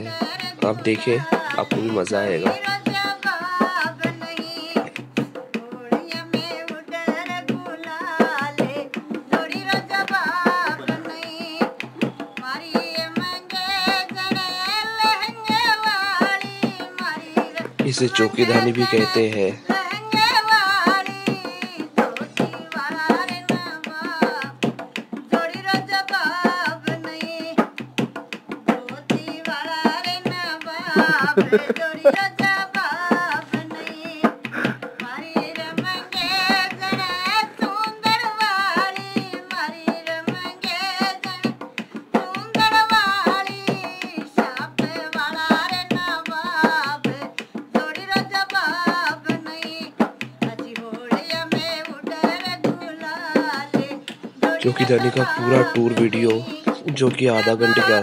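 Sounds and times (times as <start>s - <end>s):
barrel drum beating: 0.1s - 58.0s
folk singing: 29.2s - 39.9s, 51.1s - 58.0s.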